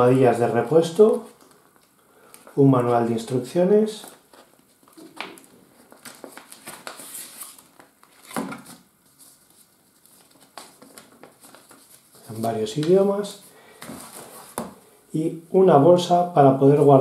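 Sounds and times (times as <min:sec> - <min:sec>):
paper booklet rustling: 0:00.5 - 0:14.8
plastic packaging crinkling: 0:03.9 - 0:12.5.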